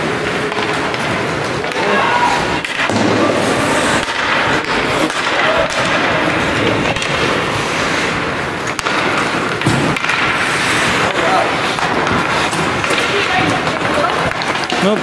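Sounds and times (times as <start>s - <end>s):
hockey sticks and puck clicking: 0.0s - 15.0s
skates hissing on ice: 3.2s - 5.3s, 5.9s - 14.4s.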